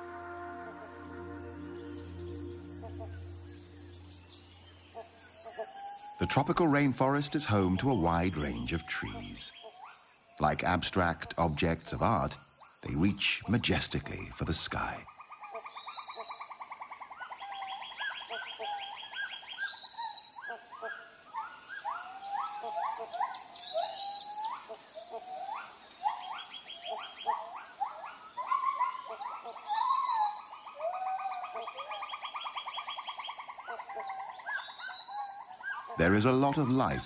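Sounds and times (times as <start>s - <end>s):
rapid pulsed animal trills: 0.0s - 6.0s.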